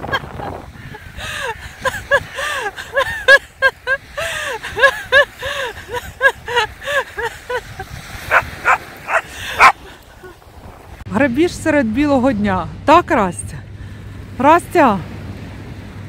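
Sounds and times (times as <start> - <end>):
small dog barking: 8.3 - 9.8.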